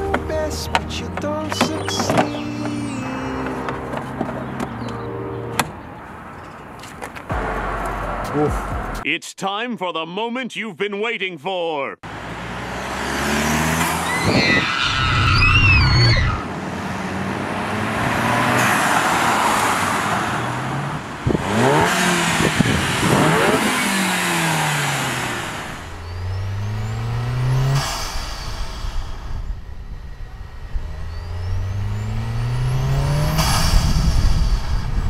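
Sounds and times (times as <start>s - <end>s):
car engine accelerating: 12.0s - 35.0s
turbo whistle: 14.1s - 16.4s
turbo whoosh: 21.3s - 35.0s
steady rushing noise: 27.5s - 35.0s.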